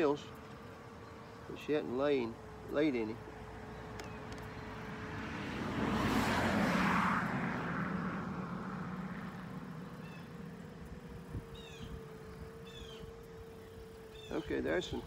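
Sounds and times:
car passing by: 4.6s - 10.6s.

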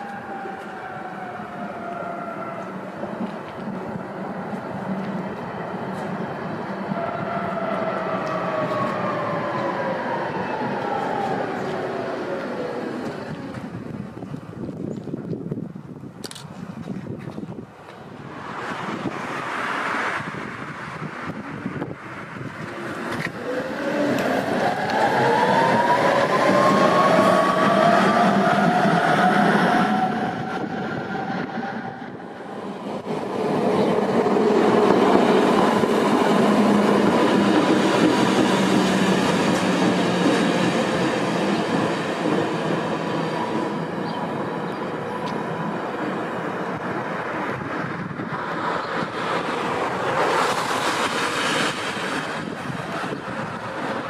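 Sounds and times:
tram motor whine: 0.0s - 14.8s, 18.1s - 54.0s
tram wheels rumbling and clattering: 0.0s - 54.0s.

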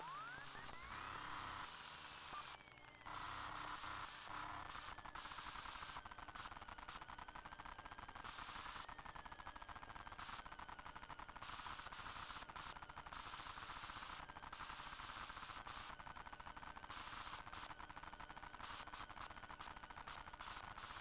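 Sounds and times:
faint high whine: 0.0s - 5.9s.

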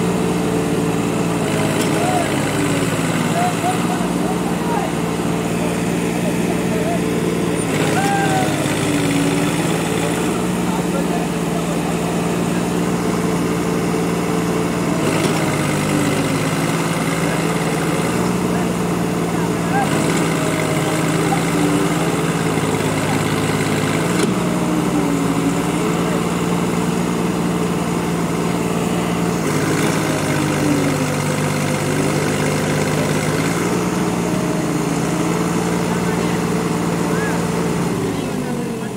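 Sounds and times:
combine harvester engine running: 0.0s - 38.9s
tractor engine running: 0.0s - 38.9s.

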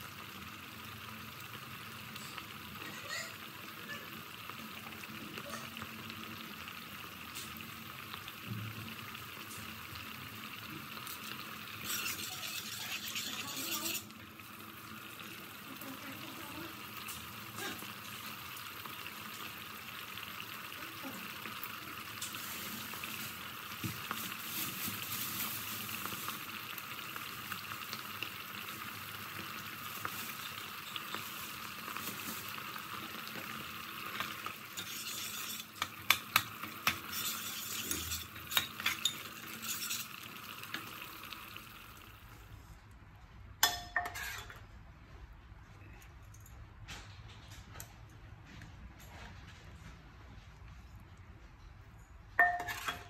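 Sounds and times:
thick sauce bubbling and sizzling: 0.0s - 43.0s
spoon clinking against pot: 43.6s - 44.6s, 52.4s - 53.0s.

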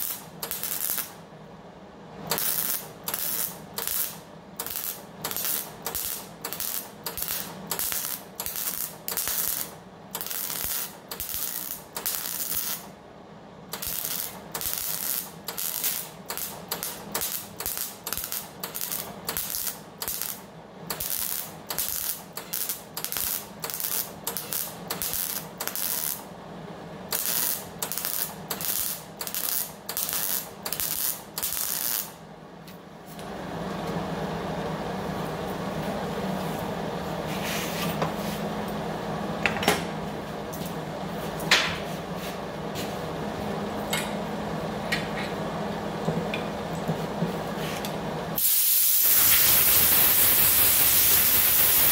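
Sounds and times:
welding arc bursts: 0.0s - 1.2s, 2.3s - 12.9s, 13.7s - 26.3s, 27.1s - 32.2s, 48.4s - 51.9s.

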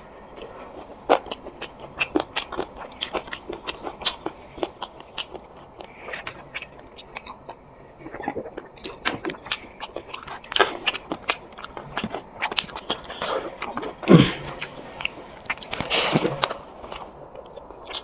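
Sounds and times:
person chewing food: 0.0s - 18.0s.

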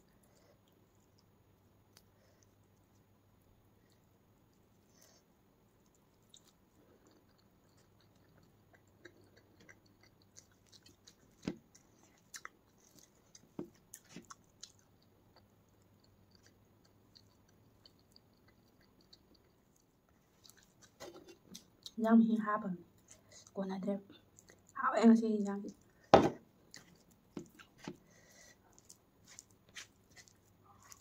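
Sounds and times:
wet chewing and mouth clicks: 3.8s - 22.1s, 22.9s - 24.8s, 25.5s - 31.0s.

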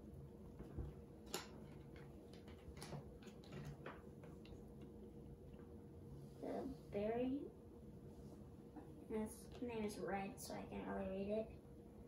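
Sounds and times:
cards clicking and tapping: 1.2s - 4.6s.

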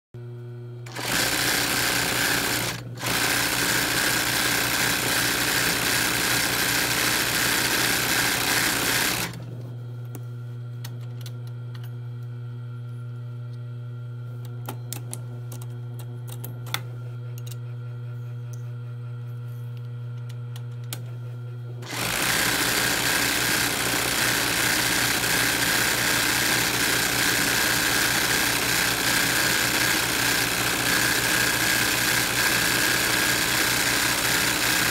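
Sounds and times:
sewing machine stitching fast: 0.9s - 9.5s, 21.8s - 34.9s.

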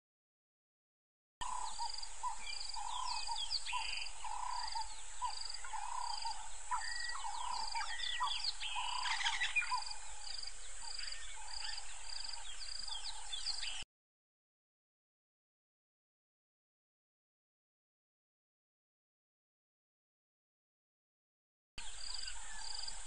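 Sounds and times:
birds chirping: 1.4s - 13.8s, 21.8s - 23.0s.

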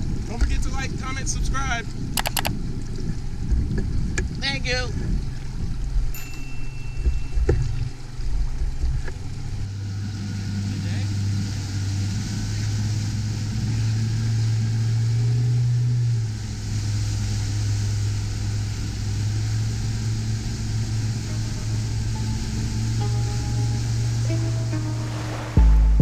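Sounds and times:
motorboat engine droning: 0.0s - 26.0s
wind and water rushing: 0.0s - 26.0s.

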